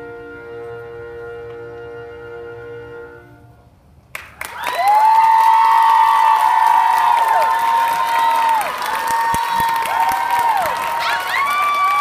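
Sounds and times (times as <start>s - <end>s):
applause: 4.1s - 12.0s
audience cheering: 4.4s - 12.0s.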